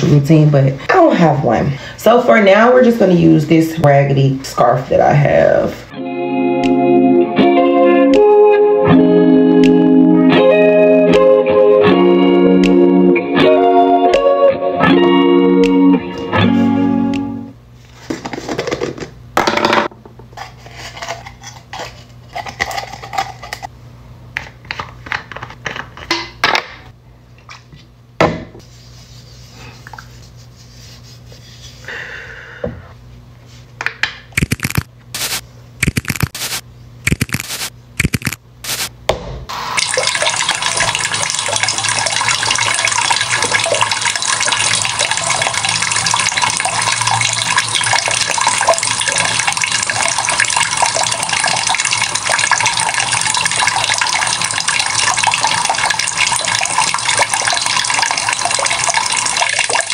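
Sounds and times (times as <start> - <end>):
tap water running into basin: 39.7 - 59.9.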